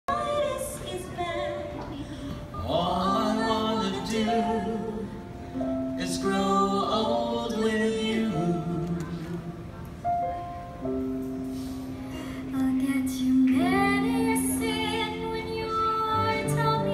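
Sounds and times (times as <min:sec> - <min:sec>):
vocal group singing in harmony: 0:00.1 - 0:09.6.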